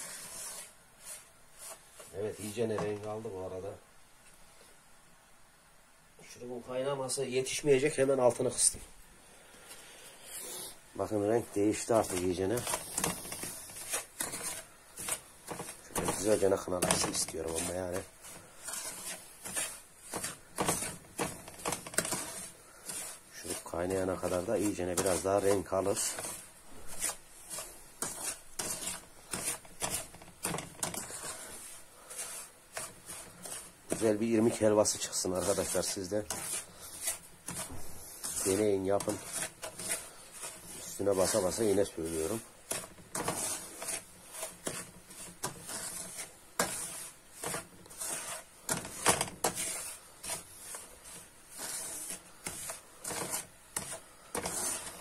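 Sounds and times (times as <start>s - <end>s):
spoon scraping a frying pan: 11.4s - 55.0s.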